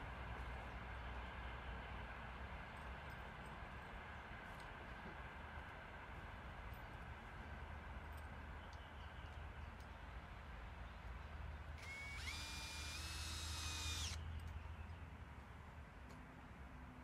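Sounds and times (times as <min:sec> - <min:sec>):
power drill whine: 0:11.8 - 0:14.2.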